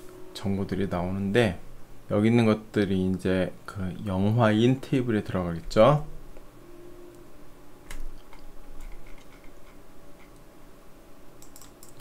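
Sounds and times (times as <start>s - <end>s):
faint low hum: 0.0s - 12.0s
mouse and keyboard clicks: 11.4s - 12.0s.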